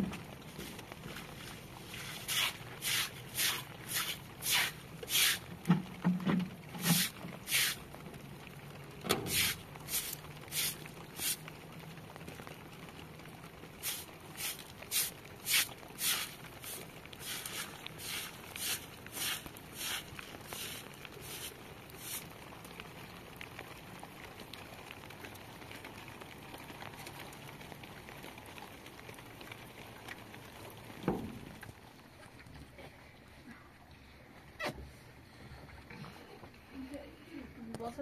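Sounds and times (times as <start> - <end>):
broom sweeping wet ground: 0.4 - 5.5, 6.7 - 7.8, 9.2 - 11.4, 13.8 - 22.3.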